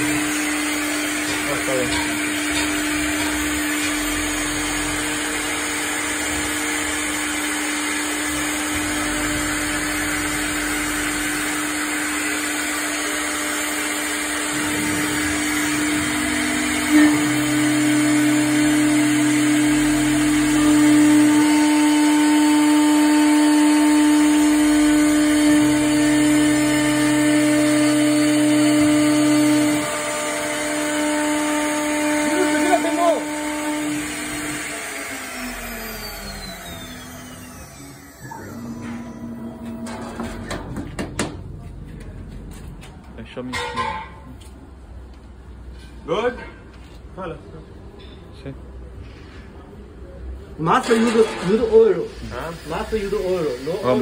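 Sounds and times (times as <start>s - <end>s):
router spindle hum: 0.0s - 40.6s
hiss of cutting metal: 52.0s - 54.0s.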